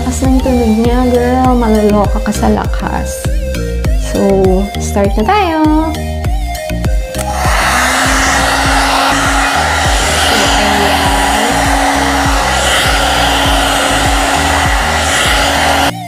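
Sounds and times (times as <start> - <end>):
hair dryer air rushing: 7.2 - 16.0
motor hum: 7.2 - 16.0.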